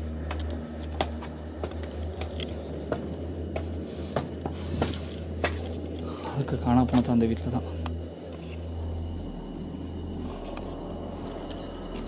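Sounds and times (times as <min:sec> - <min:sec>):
footsteps on concrete stairs: 0:00.0 - 0:06.0
steady low hum: 0:00.0 - 0:12.0.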